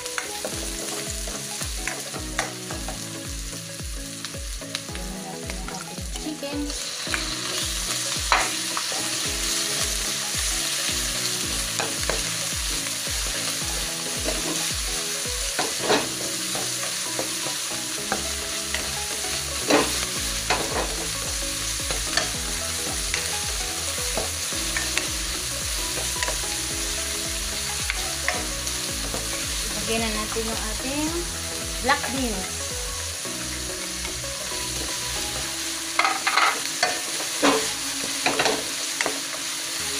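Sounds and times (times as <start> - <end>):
onions and chicken sizzling in oil: 0.0 - 39.9
spatula scraping and clacking on pan: 7.1 - 10.0, 14.2 - 14.7, 15.6 - 18.9, 19.6 - 21.2, 36.0 - 39.3.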